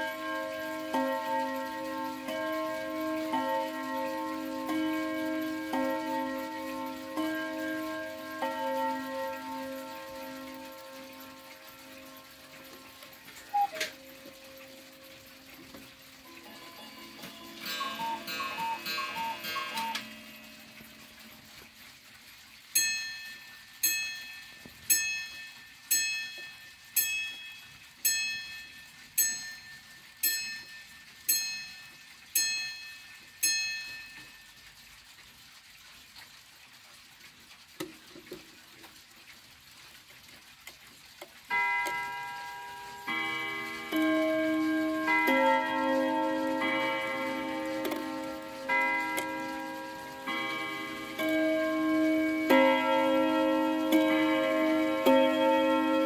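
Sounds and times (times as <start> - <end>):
clock hammer striking chime rod: 0.0 - 20.8, 41.5 - 56.0
clock chime melody: 0.0 - 21.9, 22.5 - 34.8, 41.5 - 56.0
clock ticking faintly: 0.0 - 56.0.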